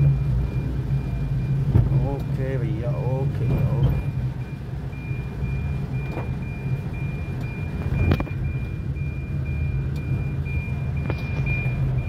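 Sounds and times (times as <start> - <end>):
car engine and road rumble: 0.0 - 12.0
faint high beep: 5.0 - 12.0.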